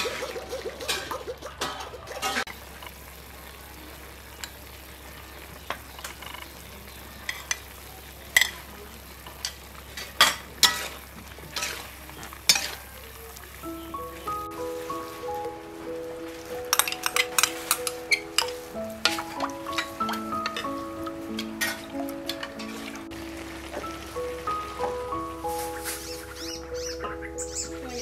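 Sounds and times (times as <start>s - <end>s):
food sizzling in a wok: 2.4s - 28.0s
metal spatula scraping a wok: 11.6s - 11.9s
music: 13.6s - 28.0s.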